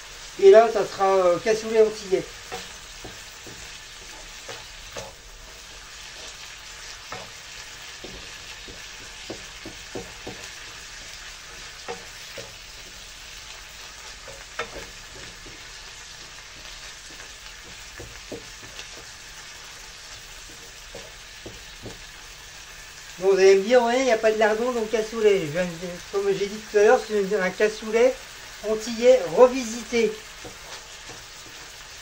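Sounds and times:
onions sizzling in a frying pan: 0.0s - 32.0s
wooden spatula scraping a pan: 0.8s - 23.1s, 29.4s - 32.0s.

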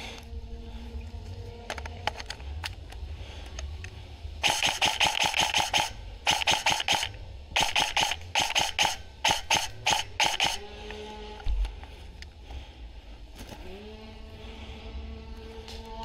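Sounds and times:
airsoft gun firing: 4.4s - 10.7s.

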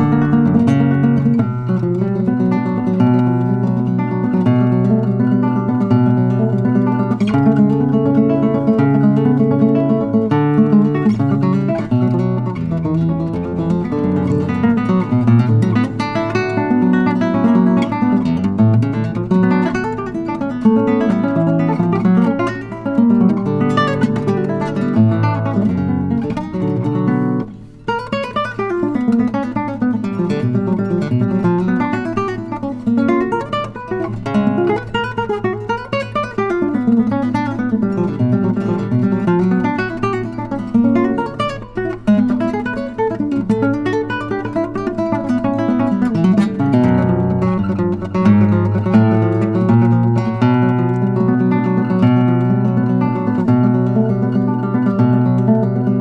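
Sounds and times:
classical guitar fingerstyle: 0.0s - 56.0s.

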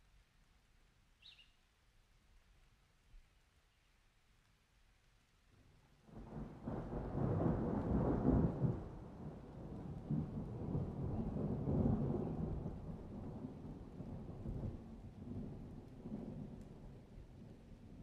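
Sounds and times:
rain: 0.0s - 18.0s
rumble of thunder: 6.1s - 18.0s.

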